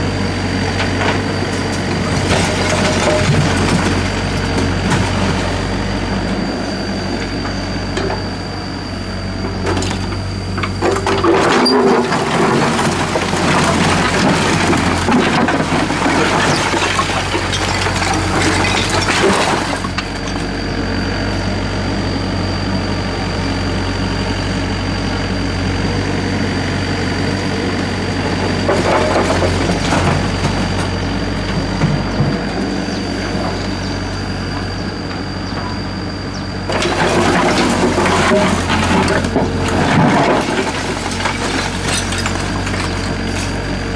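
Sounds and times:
excavator diesel engine running: 0.0 - 43.9
bucket scraping through rubble: 1.9 - 5.5, 11.0 - 20.0, 36.7 - 43.7.

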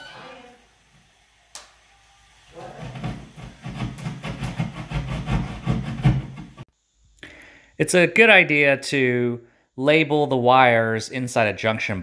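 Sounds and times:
hand saw sawing drywall: 2.7 - 6.6.

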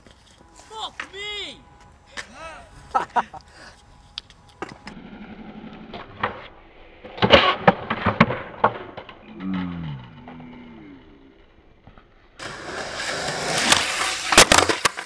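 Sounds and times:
skateboard wheels rolling on concrete: 0.0 - 15.0
skateboard cracking and clattering: 4.6 - 9.4, 11.8 - 15.0.

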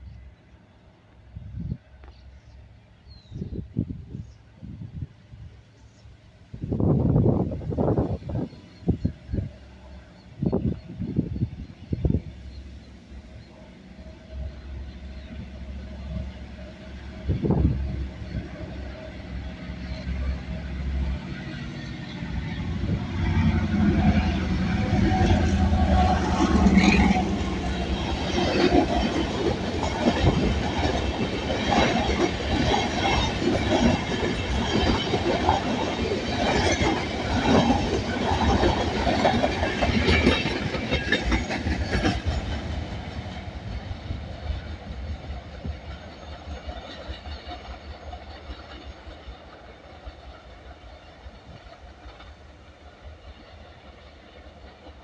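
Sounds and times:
locomotive engine running low: 12.7 - 55.0
wagons rattling over rails: 24.5 - 55.0.

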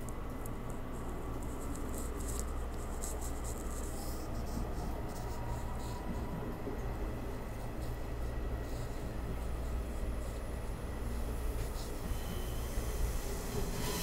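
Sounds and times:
light scratchy ticks: 0.0 - 6.3
low hum inside train car: 0.0 - 14.0.

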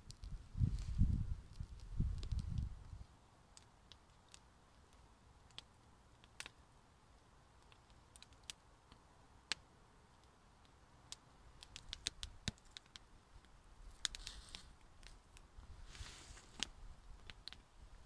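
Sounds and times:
campfire crackling: 0.0 - 18.0
short rustle: 14.2 - 14.8, 15.7 - 16.8.

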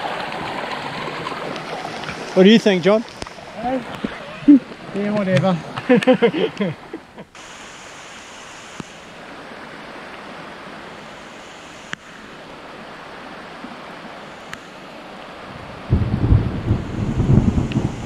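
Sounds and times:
heavy rain in forest: 0.0 - 18.0
faint sharp ticks: 14.5 - 14.7.

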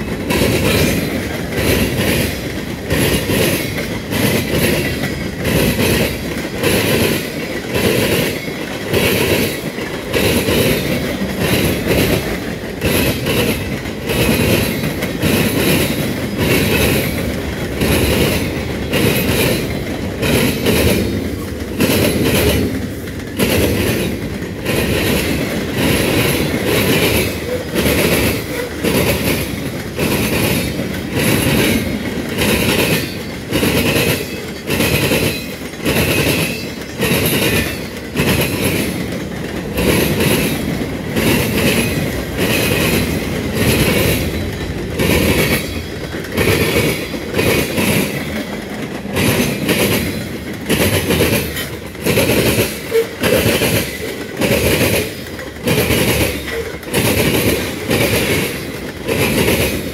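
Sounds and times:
freight train rumbling past: 0.0 - 59.9
wheels clacking over rail joints: 0.0 - 59.9.

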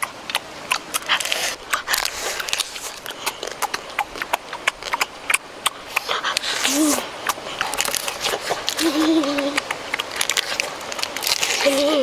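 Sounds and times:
crab shells crunching while chewed: 0.0 - 12.0.

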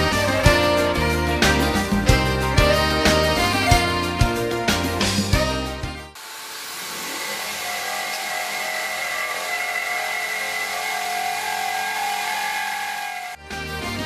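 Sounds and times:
music: 0.0 - 6.2, 13.3 - 14.0
drill grinding through glass: 6.2 - 13.4.

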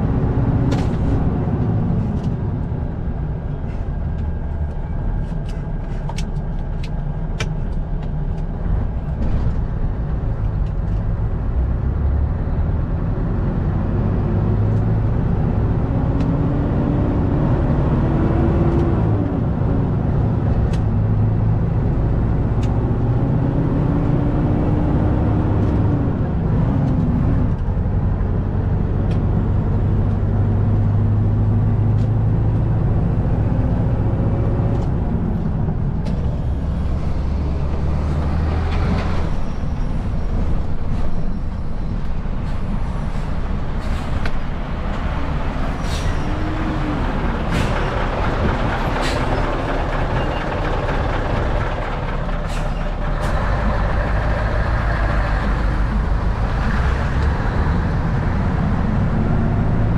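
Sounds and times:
truck diesel engine droning: 0.0 - 59.9.

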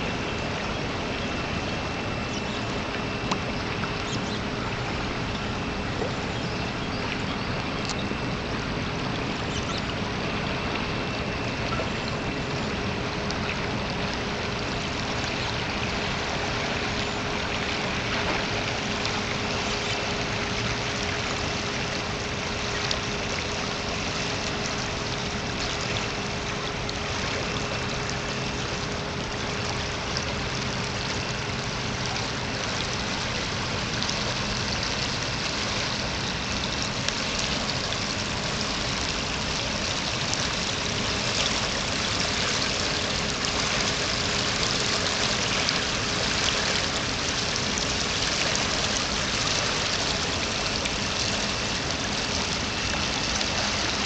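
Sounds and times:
faint steady hum: 0.0 - 54.0
flooded river rushing: 27.2 - 54.0.

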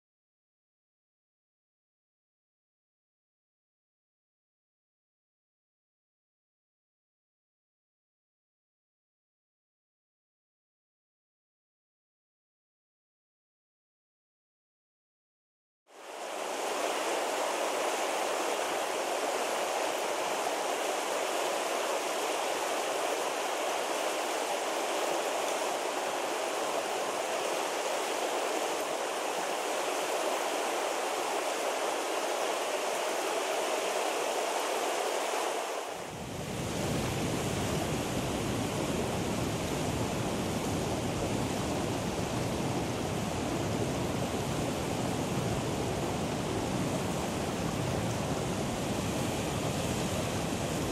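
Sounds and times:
river rushing over stones: 16.0 - 50.9.

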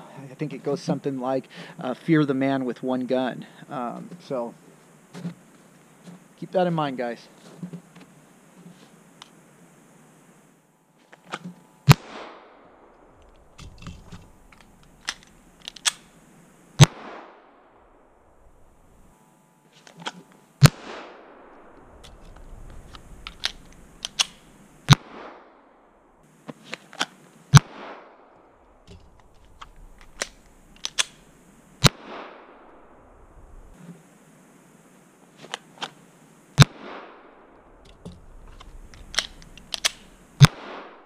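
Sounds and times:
pistol shots echoing: 39.3 - 41.0.

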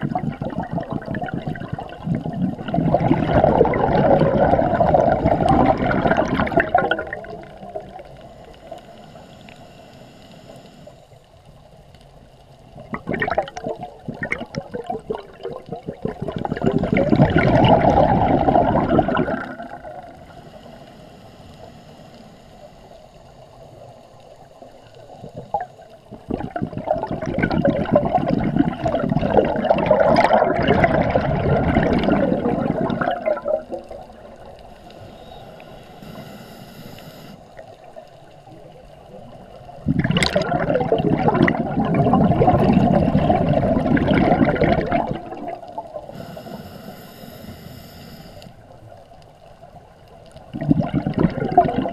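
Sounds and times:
regulator exhaust bubbles gurgling: 0.0 - 8.0, 12.8 - 20.2, 25.3 - 34.4, 39.8 - 46.2, 50.5 - 51.9.

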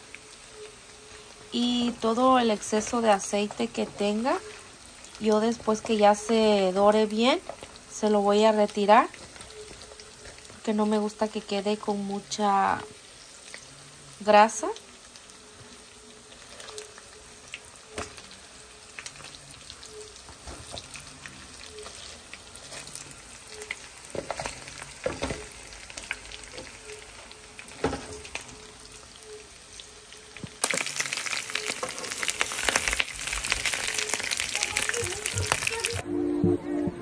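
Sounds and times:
meat sizzling in oil: 0.0 - 36.0.

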